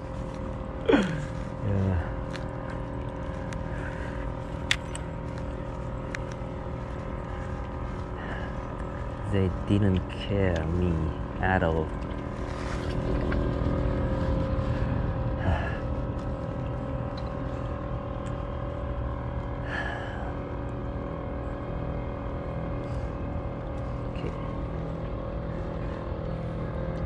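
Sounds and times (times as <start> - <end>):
steady mechanical drone: 0.0 - 27.0
breathy sigh: 0.9 - 2.1, 15.4 - 15.9, 19.6 - 20.4.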